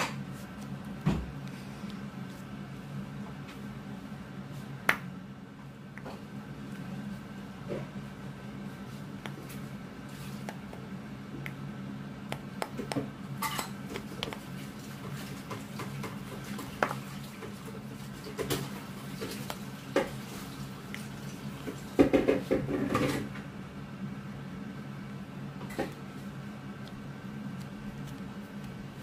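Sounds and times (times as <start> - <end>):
low steady hum: 0.0 - 29.0
hands kneading slime: 13.8 - 22.5, 25.9 - 29.0.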